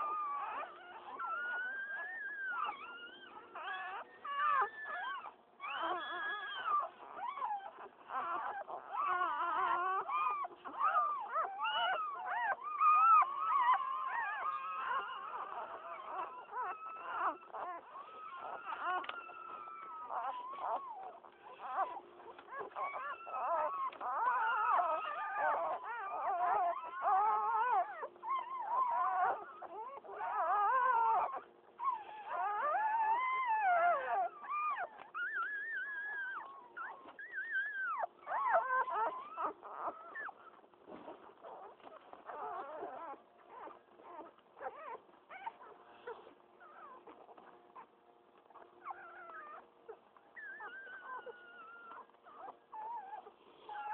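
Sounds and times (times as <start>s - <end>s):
puppies squealing and whimpering: 0.0s - 53.9s.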